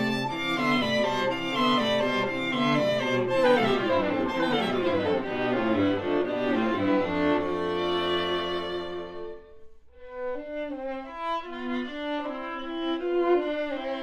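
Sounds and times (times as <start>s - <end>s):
string quartet playing: 0.0s - 14.0s.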